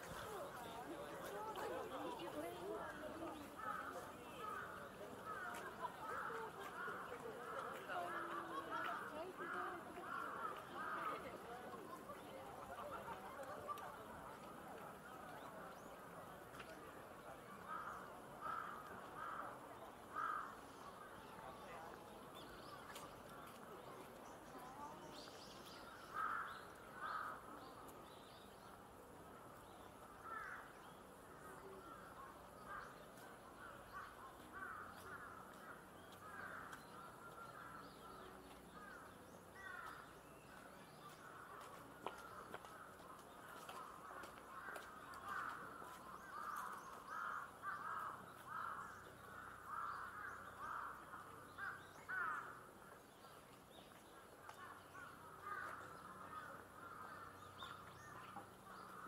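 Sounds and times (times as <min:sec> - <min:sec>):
crows cawing: 0:17.7 - 0:20.6, 0:26.1 - 0:27.4, 0:30.2 - 0:30.8, 0:33.9 - 0:37.9, 0:39.6 - 0:40.1, 0:43.6 - 0:52.6, 0:54.6 - 0:59.0.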